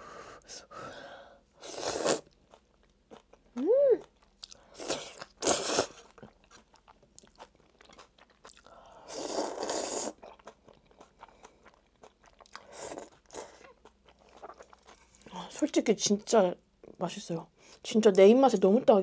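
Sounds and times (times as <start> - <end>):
person slurping noodles: 1.6 - 2.3, 4.8 - 6.0, 9.0 - 10.2
wet chewing sounds: 1.8 - 16.2.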